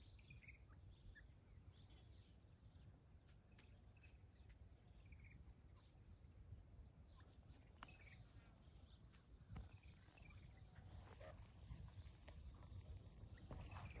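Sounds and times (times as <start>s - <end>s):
light ticks and rustles: 3.2s - 5.1s, 7.2s - 10.2s, 11.0s - 14.0s.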